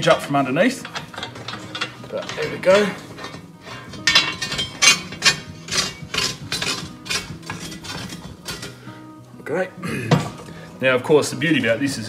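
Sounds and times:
metal parts clinking and rattling: 0.0 - 8.8.

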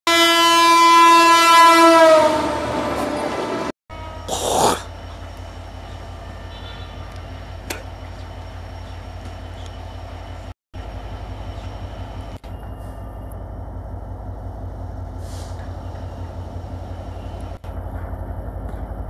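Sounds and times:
loud horn tone: 0.1 - 4.9, 6.4 - 7.1
diesel locomotive engine rumble: 0.1 - 19.0.

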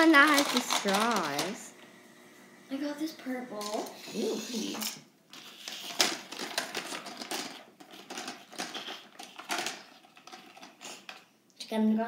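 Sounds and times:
plastic markers clicking and clattering: 0.0 - 1.6, 4.7 - 11.2.

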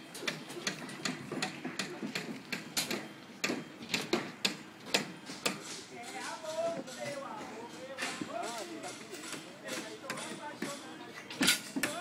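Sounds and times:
building work knocks and clicks: 0.2 - 7.2.

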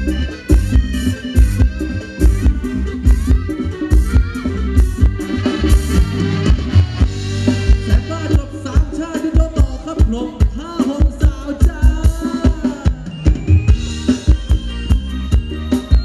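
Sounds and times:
live band playing dance music: 0.0 - 16.0
person singing: 7.4 - 13.3.

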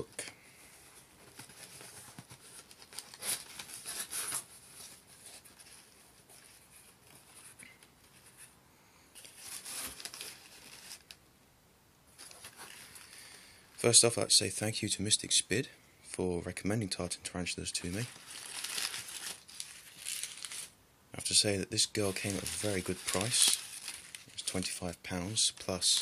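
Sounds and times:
newspaper rustling and crinkling: 0.9 - 8.5, 9.2 - 11.2, 17.7 - 20.8, 21.8 - 26.0.

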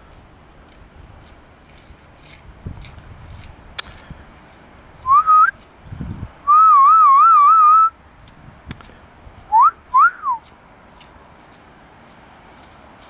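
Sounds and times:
person whistling: 5.1 - 5.6, 6.5 - 8.0, 9.5 - 10.4.

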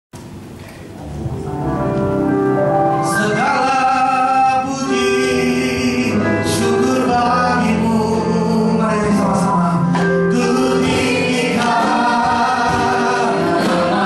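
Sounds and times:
band accompaniment: 1.0 - 14.0
man singing lead: 3.0 - 10.9
women singing together: 10.4 - 14.0.

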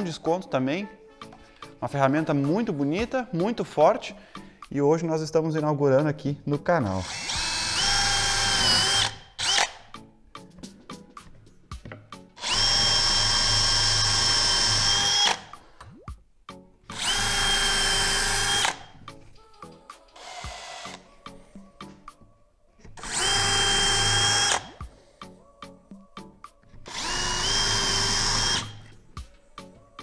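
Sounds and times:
cordless drill whining: 7.0 - 9.8, 12.4 - 15.6, 16.9 - 19.0, 20.2 - 21.1, 22.9 - 24.8, 26.8 - 28.9.

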